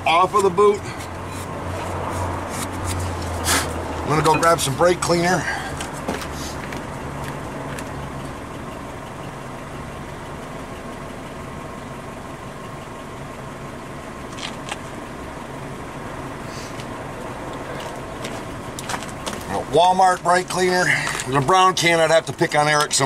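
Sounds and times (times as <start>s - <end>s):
idling engine hum: 0.0s - 23.0s.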